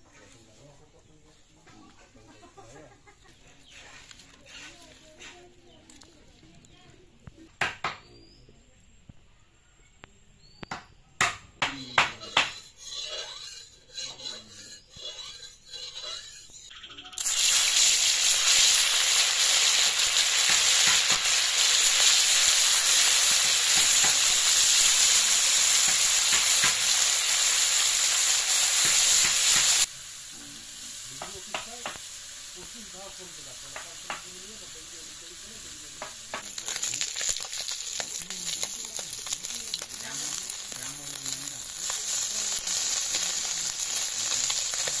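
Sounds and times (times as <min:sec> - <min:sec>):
fish sizzling in hot oil: 0:15.0 - 0:45.0.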